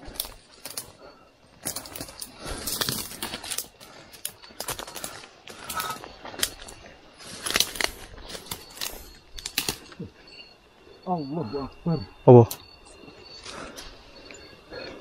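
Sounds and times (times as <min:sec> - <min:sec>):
footsteps on dry leaves and twigs: 0:00.0 - 0:10.2
brush rustling: 0:01.6 - 0:10.4.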